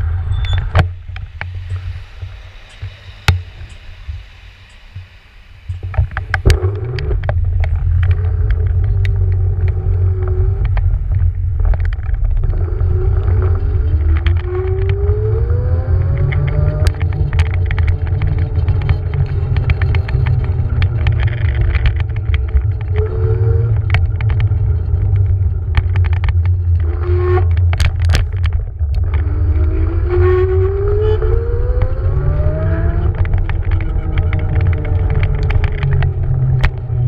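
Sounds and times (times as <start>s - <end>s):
wind and tyres rumbling: 0.0s - 37.0s
electric motor whine: 1.0s - 10.6s.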